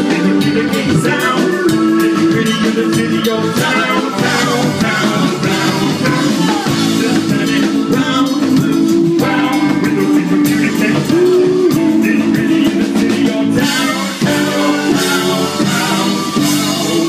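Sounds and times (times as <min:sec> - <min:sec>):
drum kit: 0:00.0 - 0:17.0
electric guitar: 0:00.0 - 0:17.0
keyboard playing: 0:00.0 - 0:17.0.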